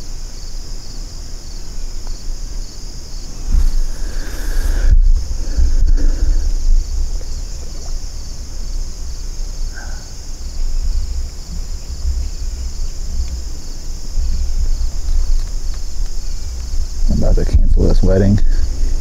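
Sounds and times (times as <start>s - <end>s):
insects singing: 0.0s - 19.0s
wind rumble on microphone: 2.1s - 19.0s.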